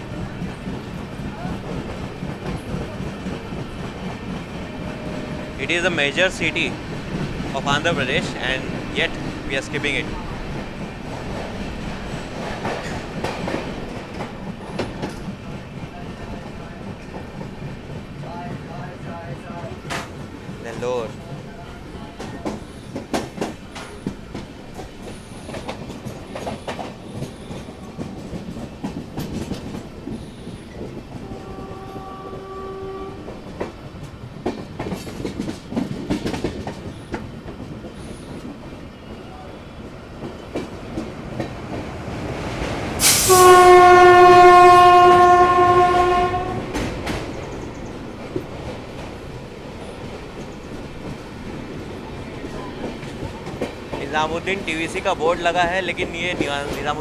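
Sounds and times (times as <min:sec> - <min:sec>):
passenger train running: 0:00.0 - 0:57.0
wheels clicking over rail joints: 0:00.1 - 0:39.2, 0:43.6 - 0:57.0
locomotive horn blasts: 0:31.2 - 0:33.4, 0:43.0 - 0:46.8.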